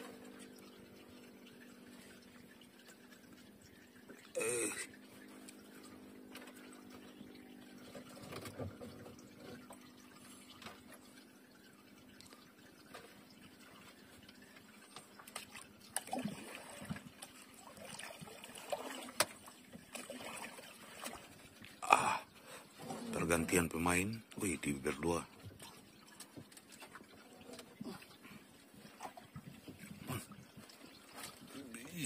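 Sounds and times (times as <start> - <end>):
small splashes: 0.0 - 23.4, 25.0 - 32.0
water trickling and dripping: 0.0 - 32.0.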